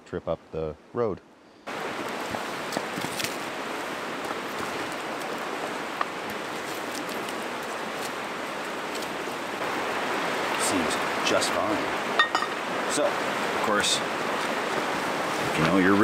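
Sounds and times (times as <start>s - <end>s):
fast creek rushing: 1.7s - 16.0s.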